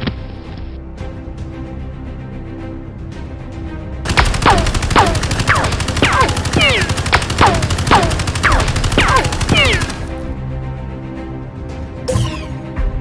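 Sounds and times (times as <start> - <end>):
rapid automatic gunfire: 4.1 - 10.3.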